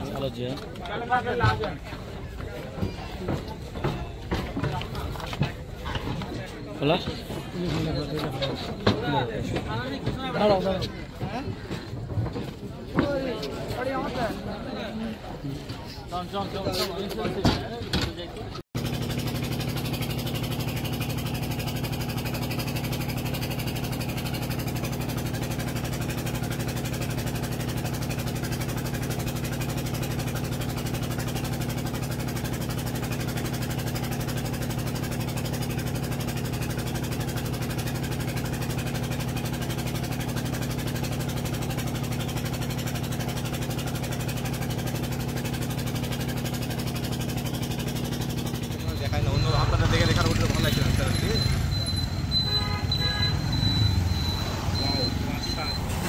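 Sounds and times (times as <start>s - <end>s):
boat engine droning: 18.8s - 56.0s.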